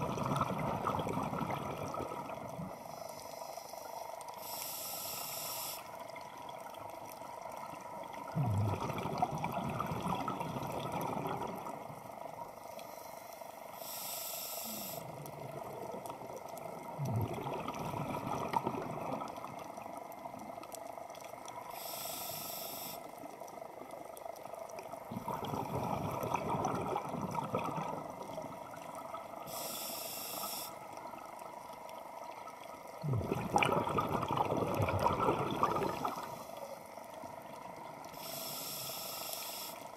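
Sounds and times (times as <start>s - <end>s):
exhaled bubbles rushing: 0.0s - 2.7s, 8.1s - 12.0s, 15.2s - 20.0s, 24.9s - 29.4s, 32.8s - 36.5s
regulator inhale hiss: 2.7s - 6.0s, 12.6s - 15.2s, 21.6s - 23.2s, 29.4s - 30.9s, 38.1s - 39.9s.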